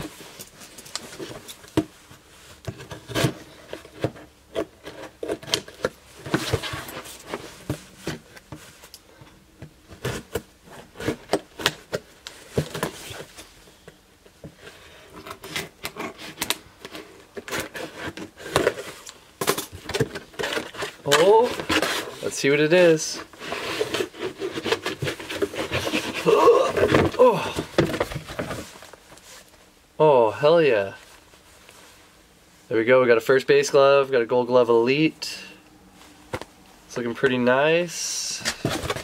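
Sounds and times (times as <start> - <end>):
handling rustles: 0.0 - 29.8, 38.2 - 39.0.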